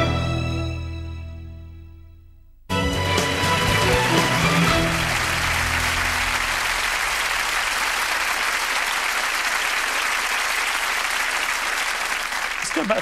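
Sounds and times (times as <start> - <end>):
studio audience applauding: 2.9 - 13.0.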